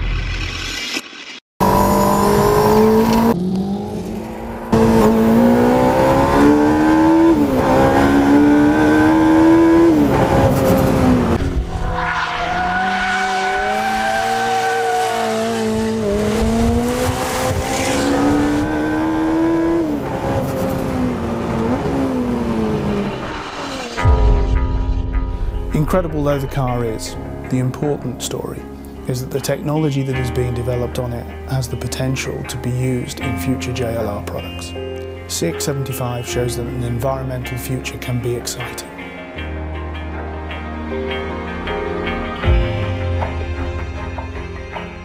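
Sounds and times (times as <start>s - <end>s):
car engine revving hard: 1.6s - 11.4s, 12.4s - 24.0s.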